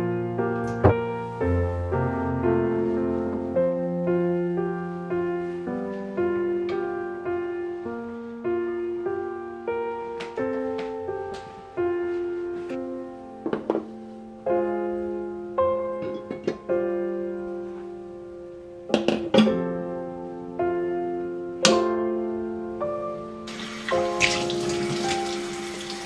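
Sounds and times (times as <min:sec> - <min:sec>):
gentle solo piano music: 0:00.0 - 0:26.0
tap running water: 0:23.5 - 0:26.0.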